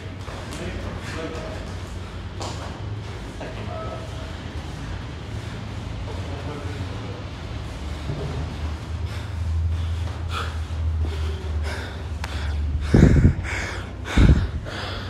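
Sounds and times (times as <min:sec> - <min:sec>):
heavy rapid panting breaths: 0:04.1 - 0:15.0.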